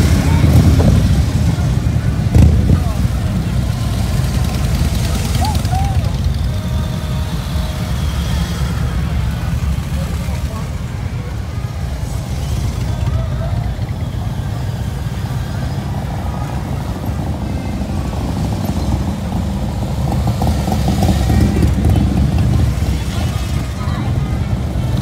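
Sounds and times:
motorcycles rumbling past: 0:15.1 - 0:25.0.

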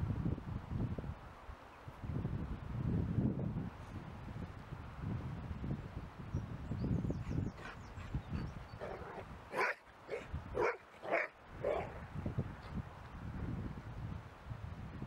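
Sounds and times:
wind rumble on microphone: 0:00.0 - 0:15.0
dog barking: 0:08.8 - 0:12.0.

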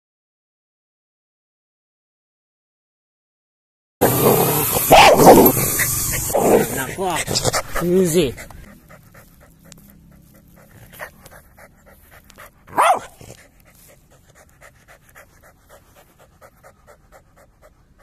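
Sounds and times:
dog crying: 0:04.0 - 0:08.8
dog panting: 0:05.4 - 0:18.0.

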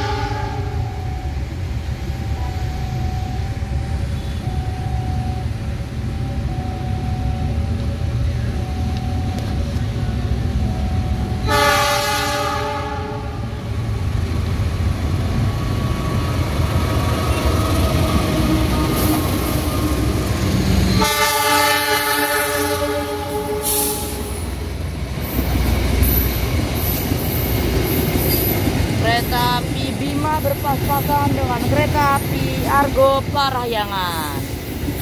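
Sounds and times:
train horn chord: 0:00.0 - 0:00.9, 0:11.4 - 0:13.5, 0:21.0 - 0:24.4
locomotive engine rumble: 0:00.0 - 0:35.0.

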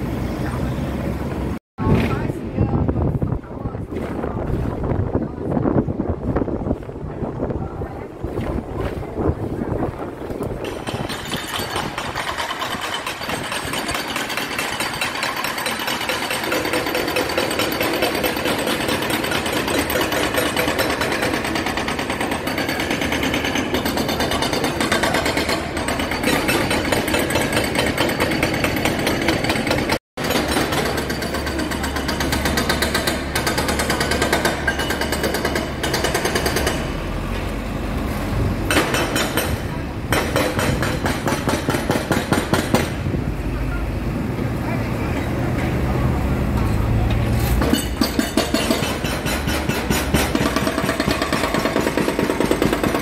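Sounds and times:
road breaker hammering: 0:10.3 - 0:37.5, 0:38.6 - 0:43.2, 0:46.4 - 0:53.0.

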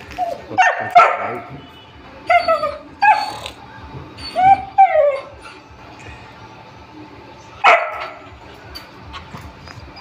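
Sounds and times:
dog yipping barks: 0:00.3 - 0:01.5, 0:07.6 - 0:08.2.

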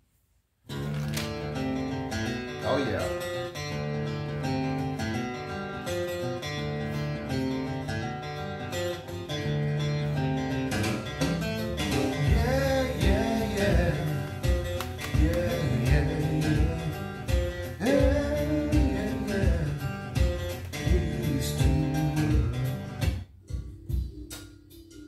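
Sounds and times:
band playing guitars over a beat: 0:03.2 - 0:24.9
person singing: 0:11.8 - 0:19.9, 0:20.8 - 0:22.8.

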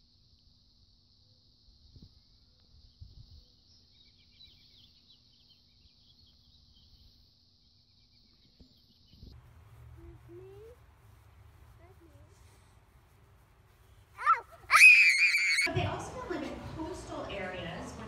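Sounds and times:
small bird chirps: 0:02.8 - 0:09.4
low rumble: 0:09.3 - 0:14.7.

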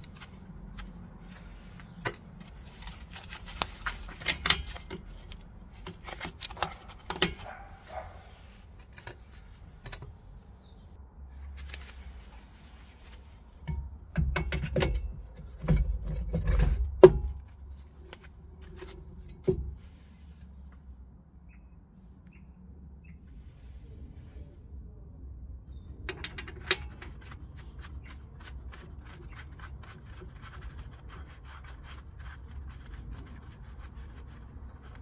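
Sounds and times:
brake drum knocking and scraping: 0:00.0 - 0:10.3, 0:13.6 - 0:17.7, 0:18.8 - 0:19.9, 0:26.0 - 0:33.5
metal brake parts clinking: 0:26.0 - 0:27.4.

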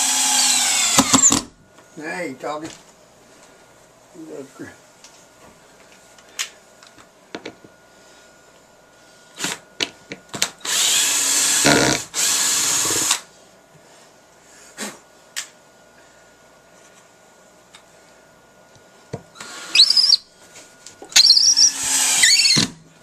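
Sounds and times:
power drill driving screw: 0:00.0 - 0:01.5, 0:10.6 - 0:13.2, 0:19.4 - 0:20.2, 0:21.2 - 0:22.8.

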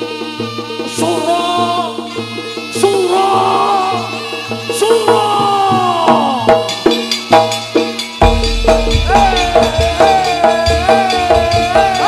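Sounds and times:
traditional ensemble music over speakers: 0:00.0 - 0:12.0
struck percussion strokes: 0:02.2 - 0:12.0
deep low drum: 0:08.2 - 0:12.0.

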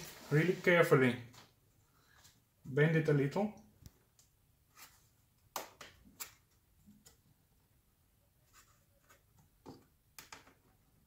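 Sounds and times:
clicks and light taps: 0:03.5 - 0:04.4.

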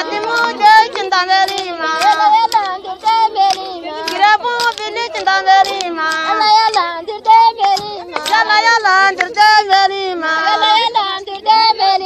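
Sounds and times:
sharp percussive clicks: 0:00.2 - 0:06.9.

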